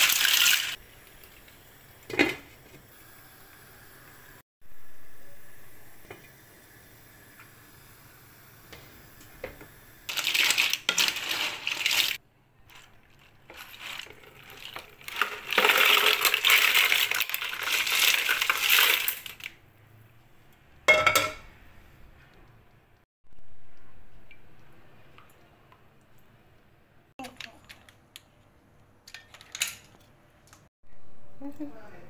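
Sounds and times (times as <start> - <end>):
shellfish clattering into colander: 13.5 - 19.5.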